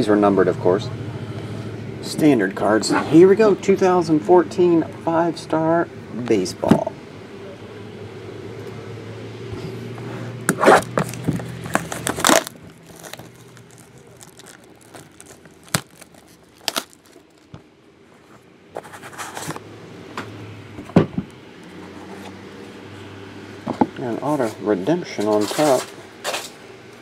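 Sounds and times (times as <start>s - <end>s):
plastic wrap ripping and crinkling: 10.5s - 17.6s
handling noises: 10.5s - 19.7s.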